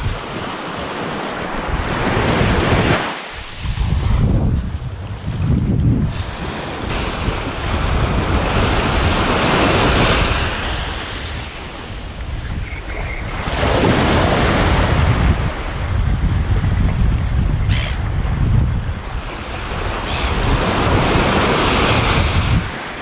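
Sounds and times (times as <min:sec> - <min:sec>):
small waves breaking on shore: 0:00.0 - 0:04.4, 0:06.3 - 0:16.1
wind buffeting microphone: 0:00.0 - 0:23.0.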